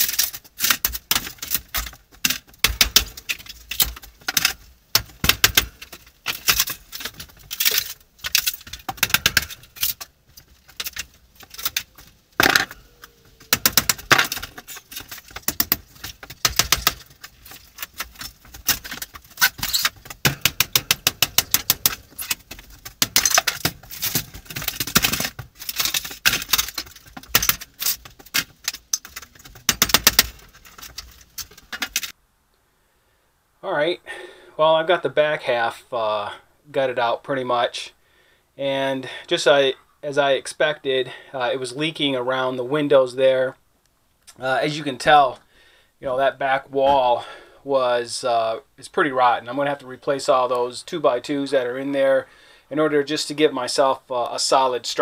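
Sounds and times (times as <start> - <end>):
wall paneling being torn out: 0.0 - 32.1.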